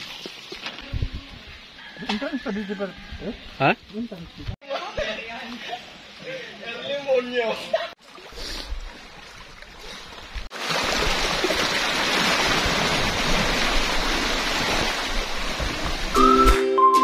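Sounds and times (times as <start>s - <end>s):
water washing over sand and rocks: 8.0s - 16.2s.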